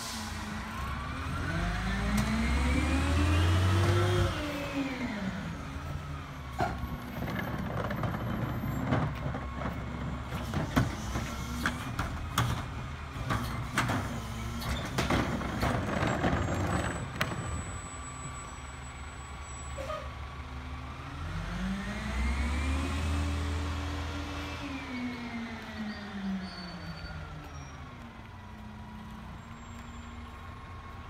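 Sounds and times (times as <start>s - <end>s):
engine revving up: 0.8s - 5.6s, 21.0s - 25.8s.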